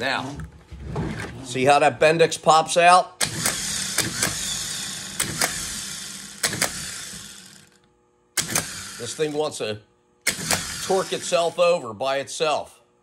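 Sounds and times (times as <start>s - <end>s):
sharp clicks: 3.2s - 4.4s, 5.2s - 5.6s, 6.4s - 6.8s, 8.4s - 8.8s, 10.2s - 10.7s
starter motor running: 3.2s - 9.6s, 10.2s - 11.6s.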